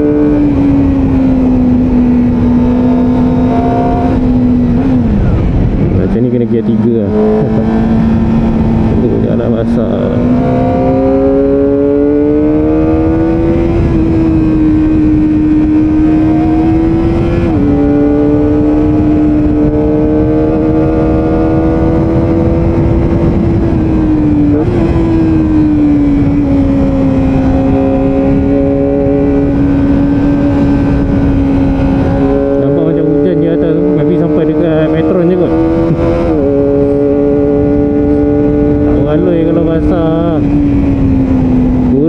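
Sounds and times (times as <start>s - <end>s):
wind noise: 0.0s - 42.0s.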